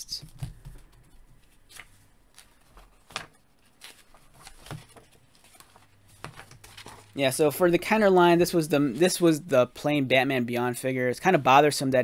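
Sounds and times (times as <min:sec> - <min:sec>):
magazine pages rustling: 0:00.4 - 0:09.4.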